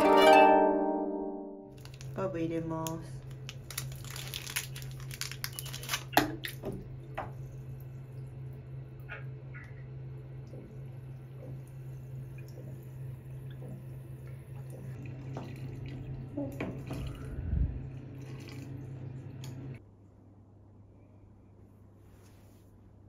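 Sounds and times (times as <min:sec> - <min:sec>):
water dripping in a bathtub: 0:05.2 - 0:19.8
steady low hum: 0:06.4 - 0:23.0.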